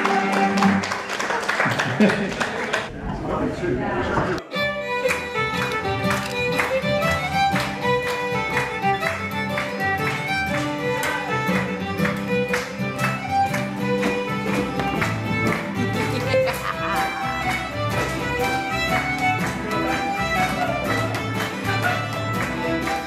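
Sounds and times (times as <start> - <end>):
fiddle melody: 0.0 - 1.0, 4.4 - 23.0
folk dance band playing: 0.0 - 1.2, 4.4 - 23.0.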